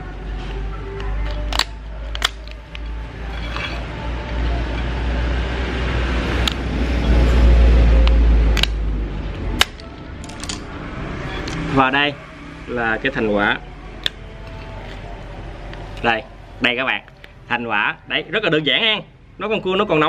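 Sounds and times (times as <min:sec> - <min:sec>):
street traffic rumbling: 0:00.0 - 0:20.0.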